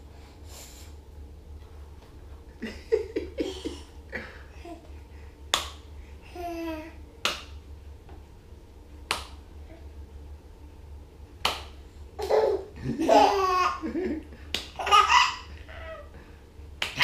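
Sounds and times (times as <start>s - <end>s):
man clapping hands: 5.5s - 5.8s, 7.2s - 7.5s, 9.1s - 9.4s, 11.4s - 11.8s, 14.5s - 14.8s, 16.8s - 17.0s
baby laughing: 12.2s - 14.1s, 14.8s - 16.1s.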